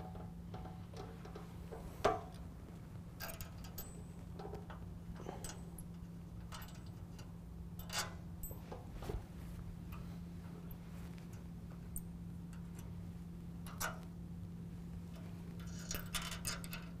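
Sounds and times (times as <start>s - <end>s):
steady low hum: 0.0s - 17.0s
small metal clicks and clinks: 3.2s - 8.7s, 13.6s - 14.1s, 15.6s - 17.0s.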